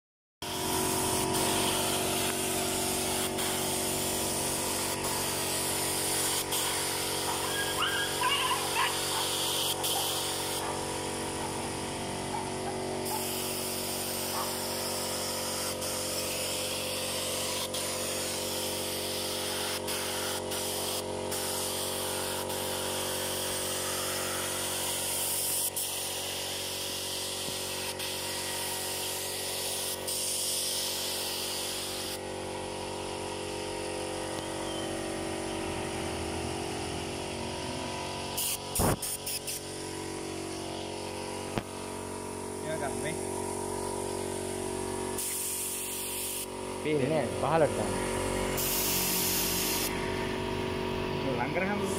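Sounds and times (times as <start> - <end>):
hiss: 0.4 - 10.7, 13.1 - 32.2, 38.4 - 39.7, 45.2 - 46.5, 48.6 - 50.0
mechanical hum: 0.4 - 51.9.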